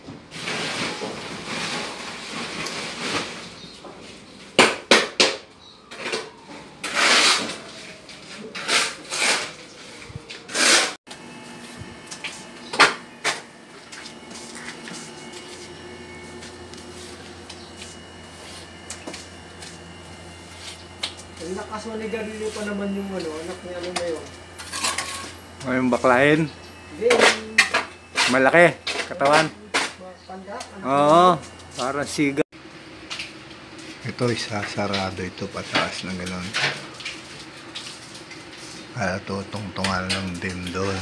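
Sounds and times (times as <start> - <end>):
tool scraping wet mortar: 6.8 - 11.0, 27.0 - 30.0
steady low hum: 7.0 - 41.0.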